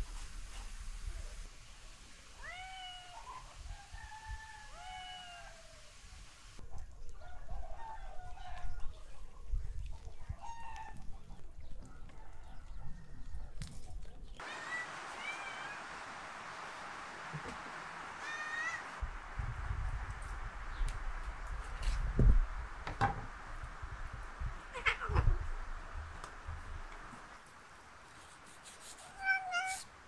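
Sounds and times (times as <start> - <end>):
high animal cries: 14.4 - 15.8, 18.2 - 19.0, 24.6 - 25.5.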